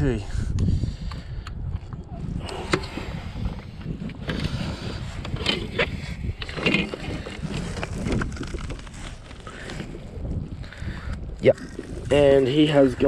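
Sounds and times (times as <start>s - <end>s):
wind rumbling on microphone: 0.0s - 13.0s
knocks of gear in boat: 5.2s - 8.8s.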